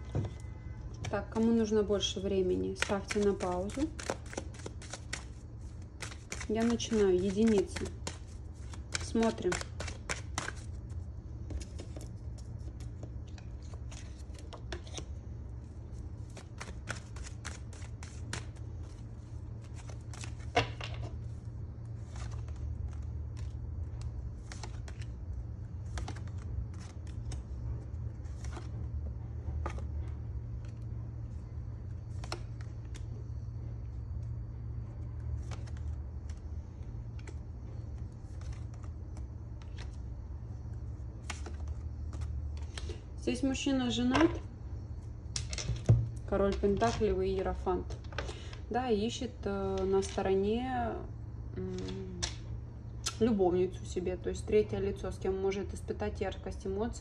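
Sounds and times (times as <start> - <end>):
cards shuffled and dealt: 0.2 - 15.1, 16.0 - 21.3, 22.0 - 30.9, 31.9 - 33.1, 35.0 - 40.1, 41.1 - 43.0.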